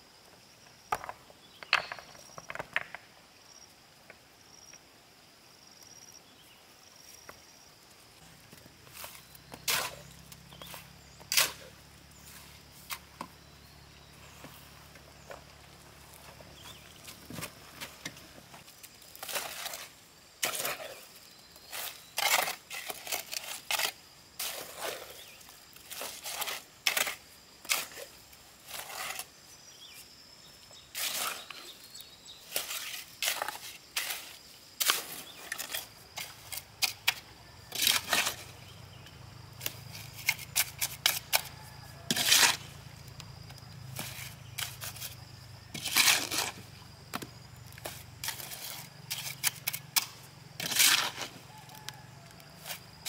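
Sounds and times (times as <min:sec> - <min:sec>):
shovel scraping wet mortar: 0:08.9 - 0:13.2, 0:19.1 - 0:29.4, 0:30.9 - 0:31.8, 0:32.4 - 0:38.7, 0:39.6 - 0:42.7, 0:44.0 - 0:46.7, 0:47.8 - 0:51.5.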